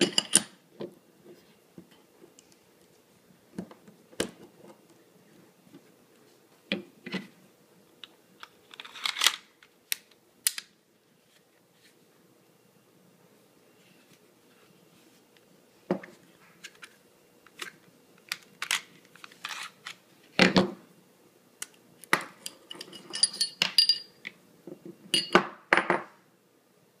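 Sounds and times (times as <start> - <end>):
small metallic clinks: 22.4 - 24.2.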